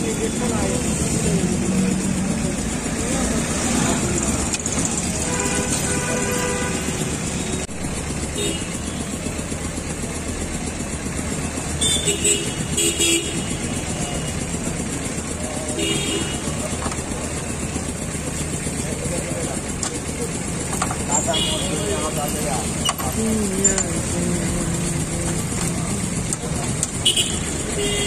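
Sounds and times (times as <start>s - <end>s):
busy street traffic: 0.0s - 28.0s
motorcycles passing: 0.0s - 28.0s
vehicle horns honking: 5.0s - 7.3s, 8.3s - 9.1s, 11.8s - 14.3s, 15.7s - 16.6s, 21.1s - 22.2s, 27.0s - 28.0s.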